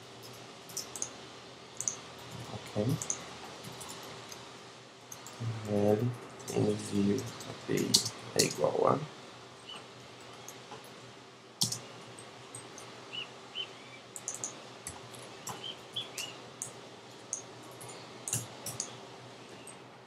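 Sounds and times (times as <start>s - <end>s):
faint steady hum: 0.0s - 20.0s
computer keyboard keystrokes: 0.2s - 1.1s, 5.1s - 8.6s, 11.6s - 11.9s, 14.2s - 18.9s.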